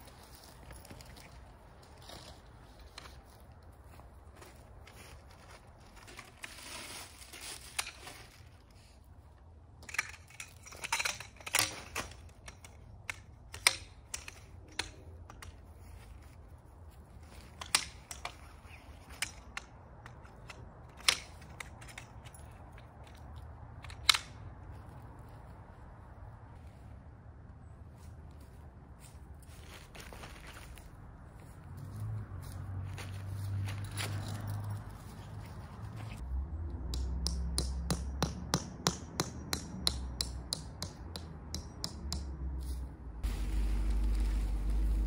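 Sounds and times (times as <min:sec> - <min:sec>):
tent pole sections knocking: 0:36.8 - 0:42.4
tent canvas rustling: 0:43.2 - 0:45.0.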